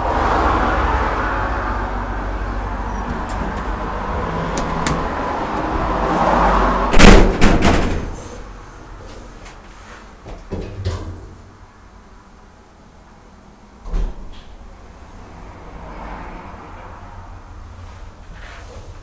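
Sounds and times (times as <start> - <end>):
elevator running: 1.4 - 7.8
sliding doors clunking: 2.8 - 9.6.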